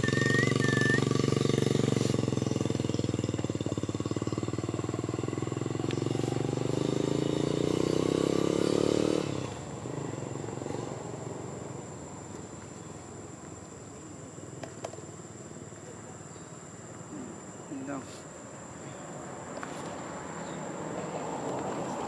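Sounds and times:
vehicle engine running: 0:00.0 - 0:08.6.

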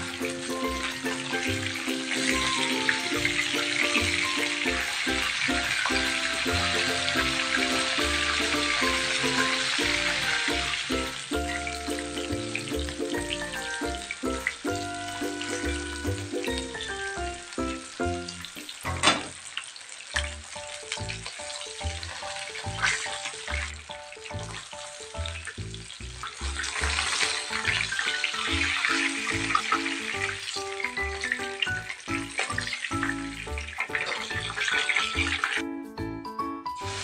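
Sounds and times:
background music with beat: 0:00.0 - 0:18.3, 0:35.2 - 0:37.0
fish sizzling in oil: 0:00.0 - 0:35.6, 0:36.8 - 0:37.0.

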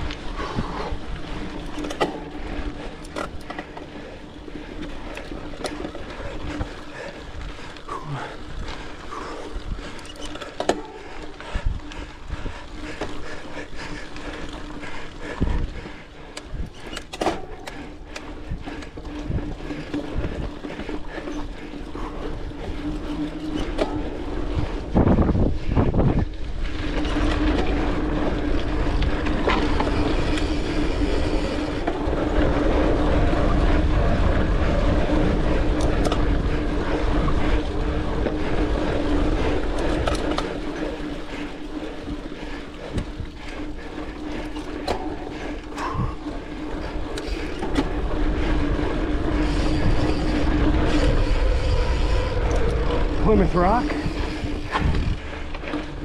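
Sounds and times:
bike rattling over bumps: 0:00.0 - 0:56.0
bike tyres rolling on dirt: 0:00.0 - 0:56.0
steady buzzing tone: 0:21.9 - 0:56.0
wind on microphone: 0:23.8 - 0:40.4, 0:44.9 - 0:56.0.

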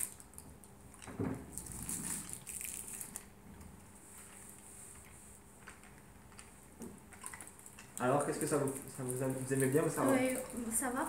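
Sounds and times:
candy wrappers crinkling: 0:01.5 - 0:03.3, 0:07.2 - 0:11.0.

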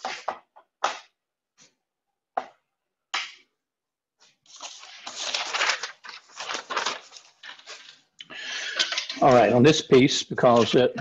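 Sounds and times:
tools and parts clattering: 0:08.7 - 0:09.4.

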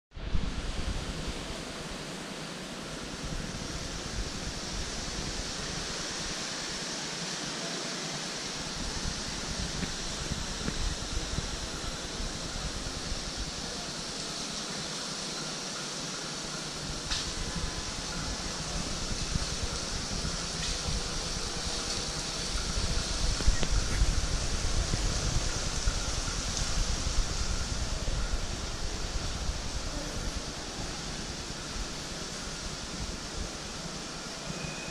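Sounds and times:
steady background hiss: 0:00.2 - 0:34.9
wind buffeting microphone: 0:08.6 - 0:14.1, 0:16.4 - 0:34.4.

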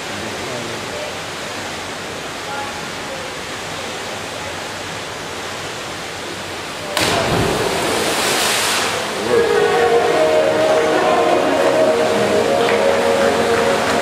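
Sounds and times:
pool hall ambience hiss: 0:00.0 - 0:14.0
divers splashing into water: 0:06.9 - 0:14.0.

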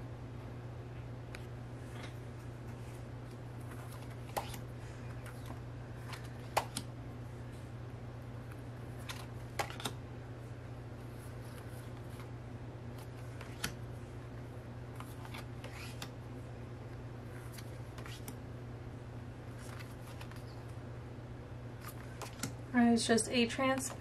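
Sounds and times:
steady low hum: 0:00.0 - 0:24.0
cards and plastic packaging rustling: 0:15.0 - 0:16.1, 0:19.5 - 0:20.7.

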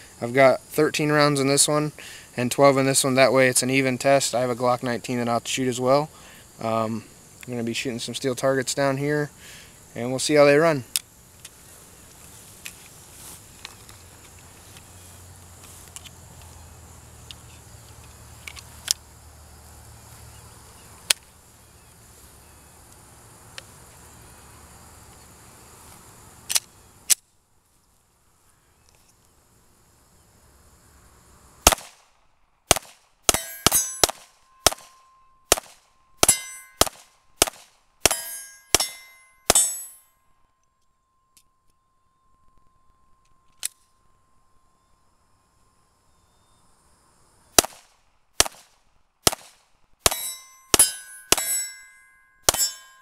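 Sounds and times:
pistol shots: 0:31.6 - 0:32.0, 0:32.7 - 0:39.9, 0:47.6 - 0:51.7, 0:52.5 - 0:53.0
bullets ringing steel targets: 0:33.3 - 0:40.1, 0:49.3 - 0:53.0.

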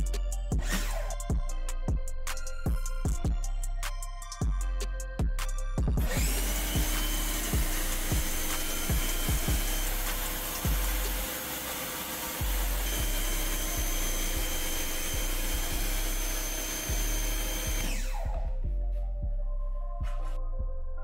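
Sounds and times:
background music with bass beat: 0:00.0 - 0:11.4, 0:12.4 - 0:21.0
pressure washer spraying: 0:06.1 - 0:18.0.

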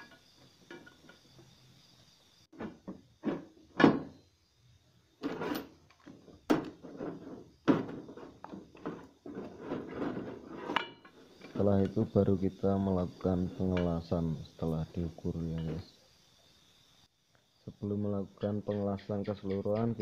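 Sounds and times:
metal pipes knocking and clunking: 0:00.0 - 0:01.2, 0:02.6 - 0:04.1, 0:06.5 - 0:11.2, 0:18.4 - 0:20.0.

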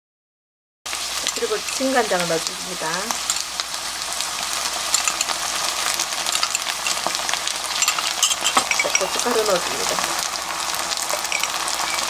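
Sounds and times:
food sizzling in oil: 0:00.9 - 0:12.0
sauce being poured: 0:03.2 - 0:09.3, 0:10.2 - 0:12.0.

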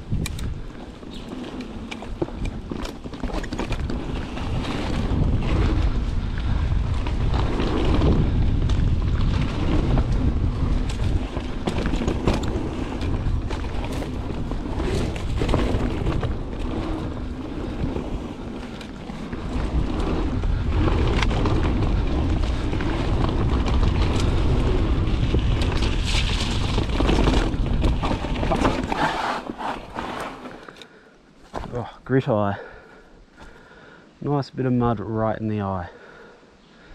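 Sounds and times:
wind buffeting microphone: 0:00.0 - 0:29.2
tyres rumbling on dirt: 0:00.0 - 0:30.8
bike rattling over bumps: 0:00.0 - 0:34.0.

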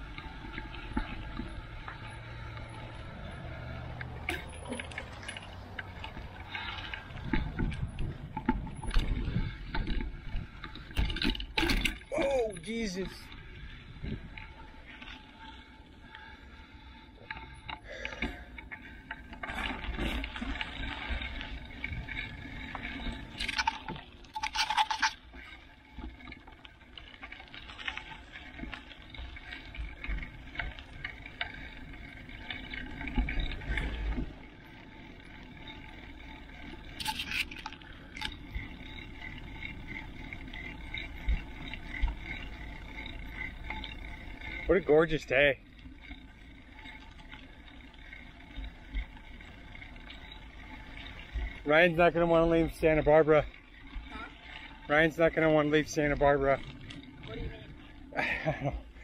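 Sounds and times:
bike tyres crunching on gravel: 0:00.0 - 0:59.0
wind buffeting microphone: 0:05.9 - 0:11.0, 0:13.4 - 0:14.6.

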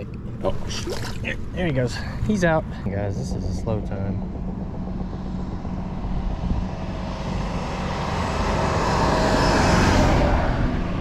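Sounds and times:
road vehicle passing: 0:05.0 - 0:11.0.

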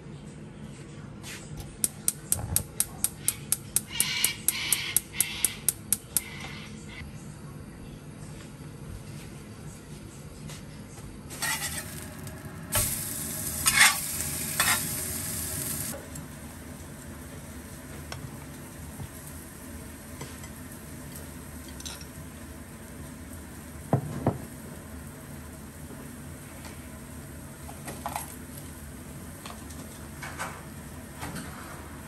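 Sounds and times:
fish fillet sizzling in a pan: 0:11.4 - 0:16.0.

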